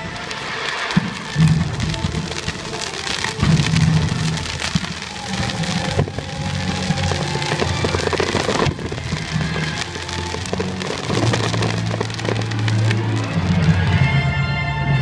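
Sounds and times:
fireworks crackling and popping: 0:00.0 - 0:15.0
soundtrack music: 0:08.6 - 0:15.0.

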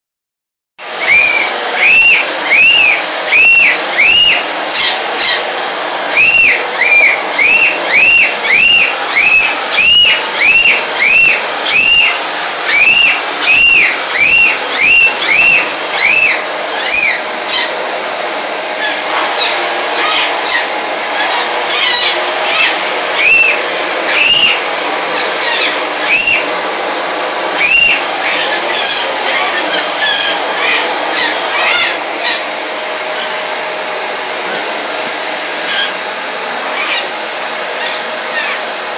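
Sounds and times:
vacuum cleaner running: 0:00.8 - 0:38.9
bird chirps rising and falling: 0:01.0 - 0:17.8, 0:18.7 - 0:26.5, 0:27.5 - 0:33.4.

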